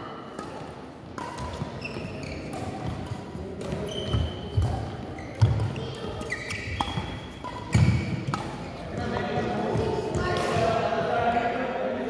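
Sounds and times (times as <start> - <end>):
racket hitting shuttlecock: 0.2 - 10.8
shoes squeaking on court: 1.2 - 9.1.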